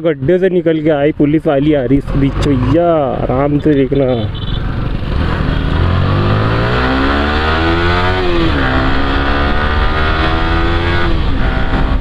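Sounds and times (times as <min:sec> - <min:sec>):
motorcycle engine accelerating: 0:02.0 - 0:03.6, 0:04.3 - 0:12.0.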